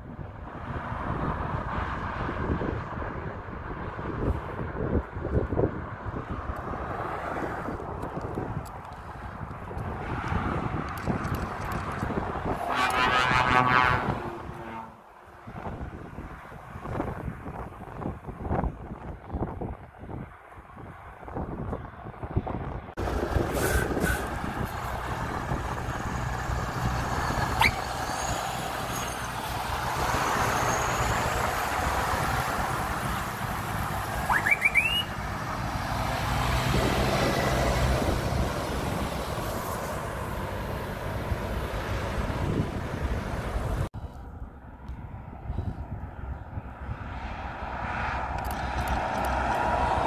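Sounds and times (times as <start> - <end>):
distant motorway traffic: 0.0 - 50.0
trucks driving past: 0.0 - 50.0
short rising squeal: 27.2 - 31.5.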